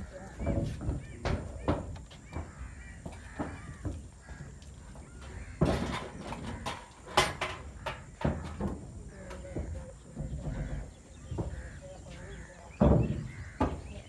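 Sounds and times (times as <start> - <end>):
knocks and thumps: 0.0 - 14.0.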